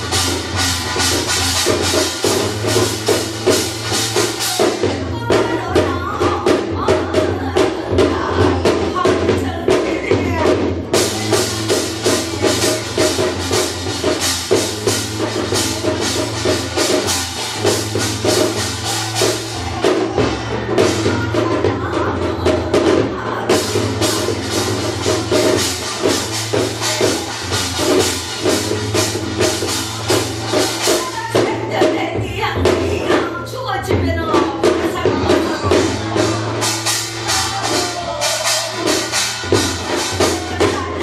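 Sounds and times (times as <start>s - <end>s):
metal percussion: 0.0s - 41.0s
hourglass drum beating: 10.4s - 31.6s.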